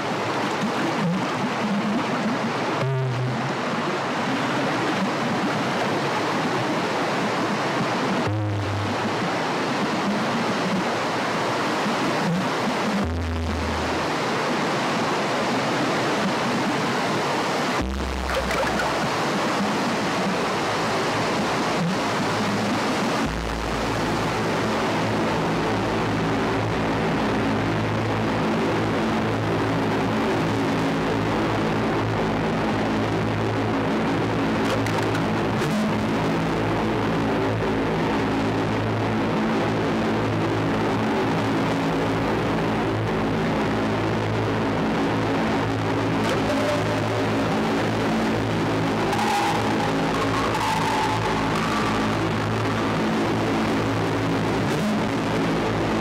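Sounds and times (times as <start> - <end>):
rushing water: 0.0 - 25.6, 44.1 - 56.0
low sustained drone: 46.3 - 54.5.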